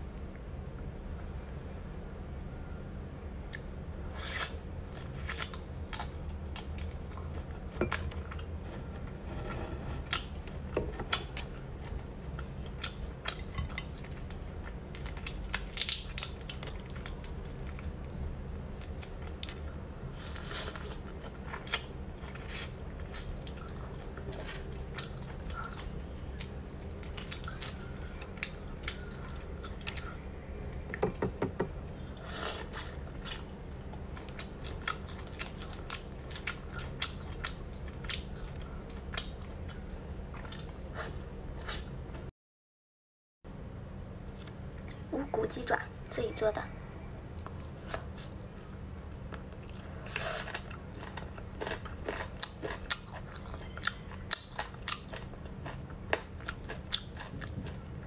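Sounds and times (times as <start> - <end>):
steady low hum: 0.0 - 42.3, 43.5 - 58.0
chewing: 18.8 - 30.2, 47.2 - 57.9.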